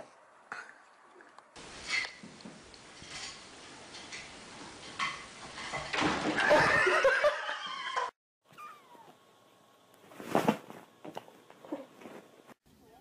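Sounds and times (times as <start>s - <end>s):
cat yowling: 8.5s - 9.1s.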